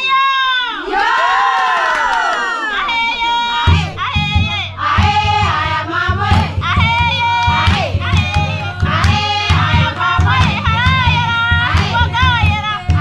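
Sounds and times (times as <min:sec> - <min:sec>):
women singing together: 0:00.1 - 0:13.0
drum beating steady rhythm: 0:03.0 - 0:13.0.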